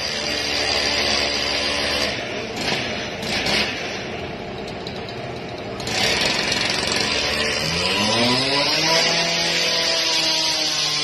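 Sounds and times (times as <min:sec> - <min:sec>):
harsh cutting noise: 0:00.0 - 0:04.3, 0:05.2 - 0:11.0
motor speeding up: 0:05.8 - 0:11.0.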